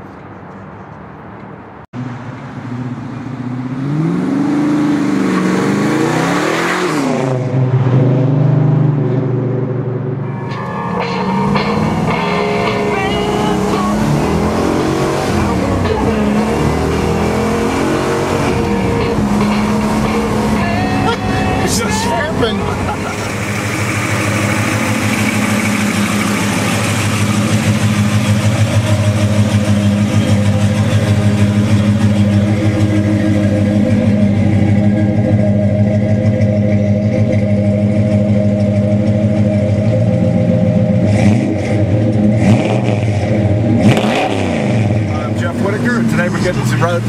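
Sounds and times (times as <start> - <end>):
car engine idling: 9.7 - 47.0
engine knocks: 22.7 - 40.3.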